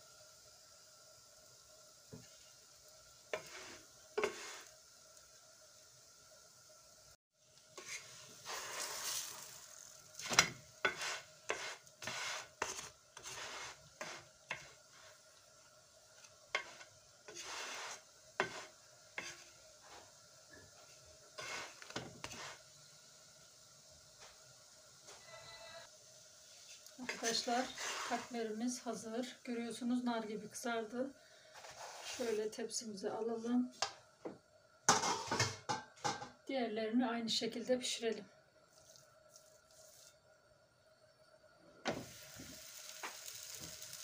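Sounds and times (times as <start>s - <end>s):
oil sizzling: 0.0s - 44.0s
spatula scraping a pan: 3.3s - 4.7s, 7.7s - 15.4s, 16.1s - 22.7s, 26.6s - 28.6s, 31.4s - 32.6s, 34.9s - 36.3s.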